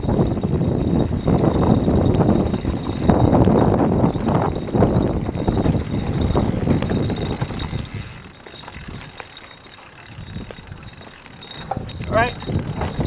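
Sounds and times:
bike rattling and knocking: 0.0s - 13.0s
bike tyres on dirt: 0.0s - 13.0s.

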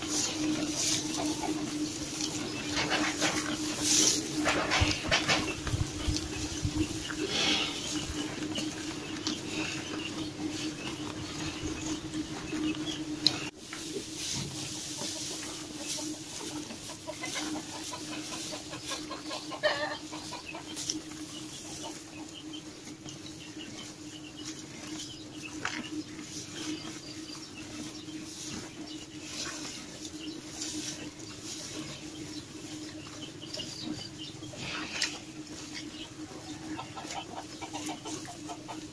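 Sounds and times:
cattle chewing dry straw: 0.0s - 38.9s
chicken clucking: 0.0s - 38.9s
steady low hum: 0.0s - 38.9s.

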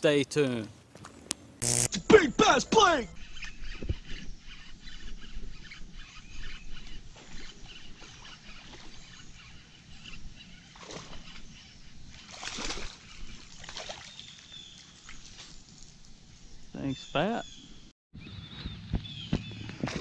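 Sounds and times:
fish splashing at water surface: 12.3s - 14.3s.

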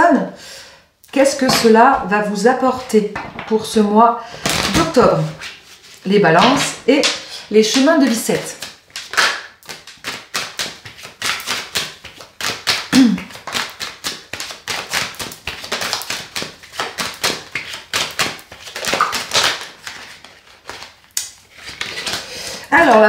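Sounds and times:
cards being shuffled: 8.0s - 23.0s.

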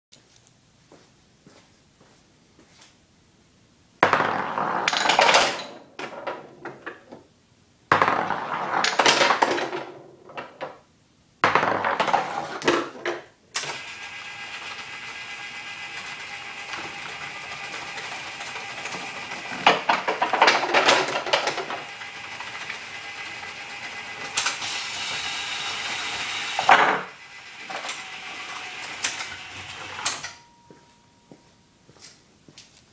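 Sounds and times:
pins clattering in pinsetter: 4.0s - 6.8s, 7.9s - 9.9s, 11.4s - 30.5s
ball clattering into pins: 4.0s - 7.1s, 7.9s - 10.8s, 11.4s - 13.3s, 18.8s - 22.4s
ball rolling down wooden lane: 4.0s - 7.2s, 7.9s - 10.7s, 11.4s - 13.2s
pinsetter motor hum: 13.6s - 30.3s.

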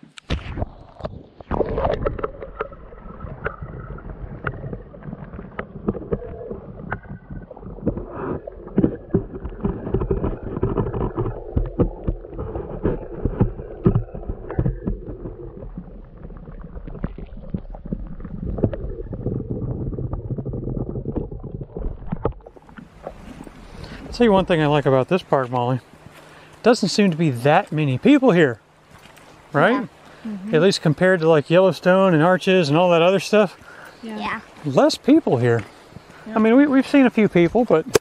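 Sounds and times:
muffled underwater water gurgling: 0.3s - 26.4s.

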